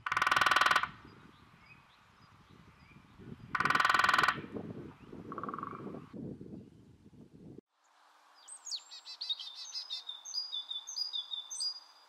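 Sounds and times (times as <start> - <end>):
woodpecker drumming on wood: 0.0 - 1.1, 3.5 - 4.5, 5.3 - 5.9.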